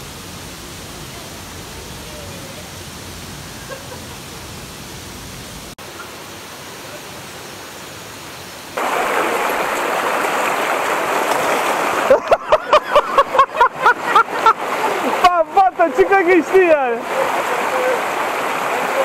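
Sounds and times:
stream and waterfall rushing: 0.0s - 19.0s
person laughing: 3.6s - 4.1s, 12.0s - 15.4s.

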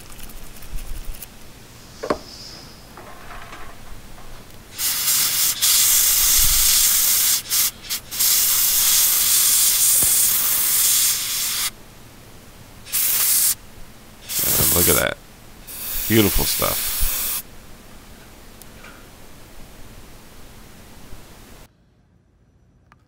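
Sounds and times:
compressed air hissing bursts: 1.7s - 11.7s, 12.8s - 13.6s, 14.2s - 17.5s.

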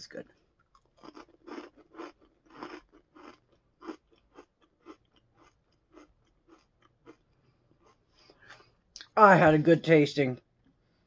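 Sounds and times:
person chewing crispy wafer: 0.4s - 8.8s.

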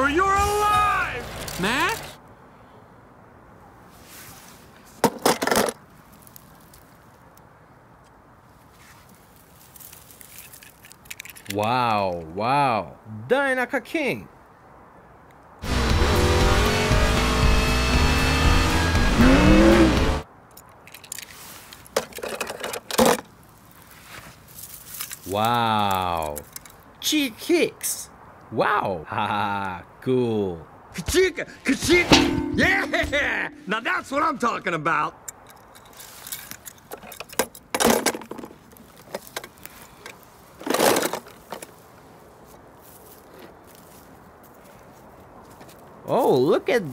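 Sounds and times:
loud crunching rustles: 8.5s - 11.5s, 21.0s - 26.9s, 35.6s - 37.0s, 37.9s - 46.0s
footsteps on dry leaves: 8.7s - 10.8s, 23.4s - 25.4s, 41.8s - 45.9s
toy car plastic clicks and knocks: 10.6s - 11.6s
race car engine noise: 15.6s - 20.2s.

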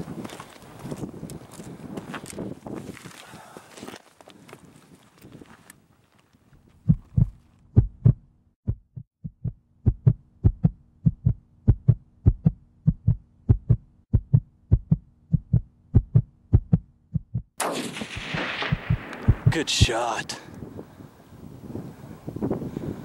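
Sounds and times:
heartbeat thumping: 6.8s - 17.6s, 18.6s - 19.5s.

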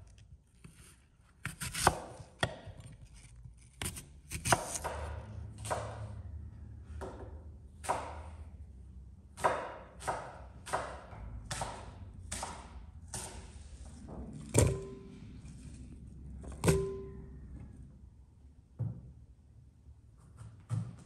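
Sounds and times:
knife chopping on wooden board: 0.6s - 6.1s, 7.8s - 8.4s, 9.4s - 13.6s, 14.5s - 15.2s, 16.5s - 17.2s
heavy thud with ringing tone: 14.5s - 15.2s, 16.6s - 17.6s.

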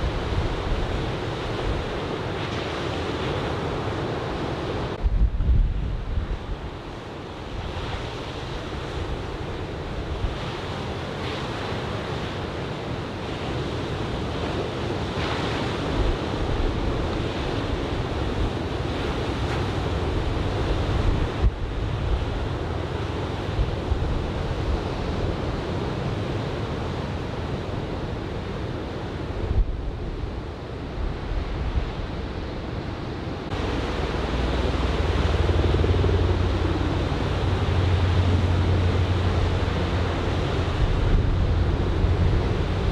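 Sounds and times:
wind buffeting microphone: 4.9s - 6.9s, 29.2s - 42.9s
ocean waves breaking: 6.2s - 42.9s.

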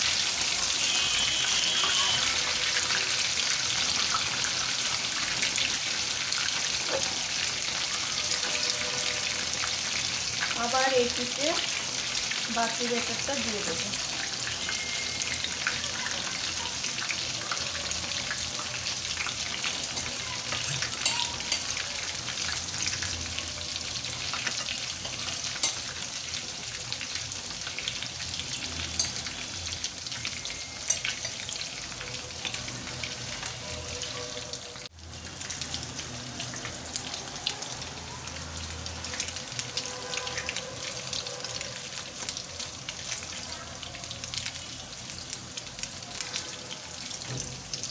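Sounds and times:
oil popping and crackling: 0.0s - 8.7s, 9.3s - 33.6s
fish frying in hot oil: 0.0s - 47.9s.

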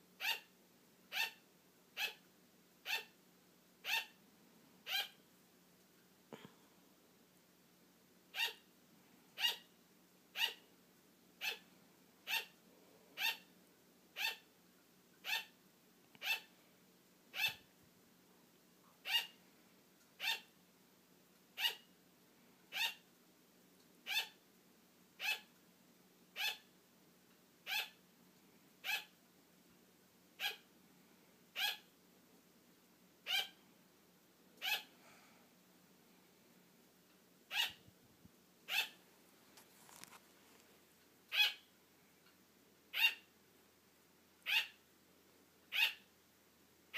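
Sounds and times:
sugar glider barking: 0.2s - 2.2s, 2.8s - 3.2s, 3.8s - 4.2s, 4.8s - 5.2s, 8.3s - 8.7s, 9.4s - 9.7s, 10.3s - 10.7s, 11.4s - 12.6s, 13.2s - 13.5s, 14.2s - 14.5s, 15.2s - 15.6s, 16.2s - 16.5s, 17.3s - 17.7s, 19.0s - 19.4s, 20.2s - 20.5s, 21.6s - 21.9s, 22.7s - 23.0s, 24.0s - 24.4s, 25.2s - 25.5s, 26.3s - 26.7s, 27.6s - 28.0s, 28.8s - 29.2s, 30.4s - 30.7s, 31.5s - 31.9s, 33.2s - 33.6s, 34.6s - 35.0s, 37.5s - 37.8s, 38.6s - 39.0s, 41.3s - 41.7s, 42.9s - 43.3s, 44.4s - 44.8s, 45.7s - 46.1s.

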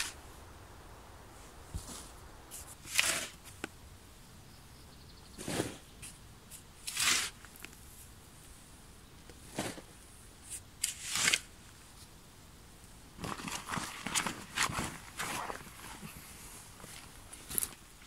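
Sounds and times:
shovel scraping sandy soil: 0.0s - 0.2s, 1.8s - 3.6s, 5.4s - 8.0s, 9.4s - 11.6s
sack rustling and crinkling: 13.2s - 17.6s.

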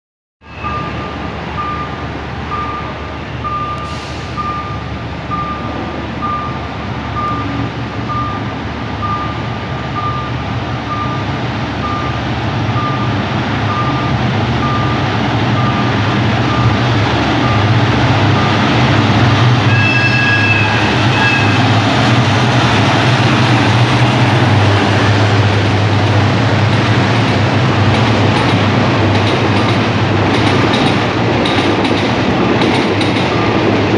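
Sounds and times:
diesel train engine rumble: 0.4s - 33.9s
train coaches rolling by: 0.4s - 33.9s
train horn blast: 19.6s - 21.8s.

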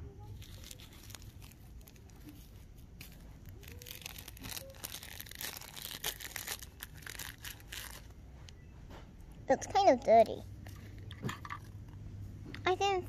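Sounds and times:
plastic wrapper crinkling: 0.2s - 8.2s.

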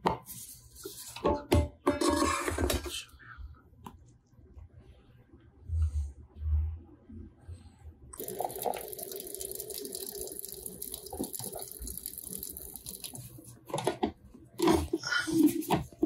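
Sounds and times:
hot water streaming into filter: 8.2s - 13.6s.

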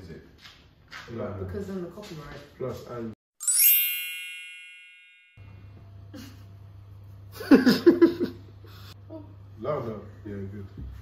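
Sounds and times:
bell-like chime: 3.4s - 5.7s.

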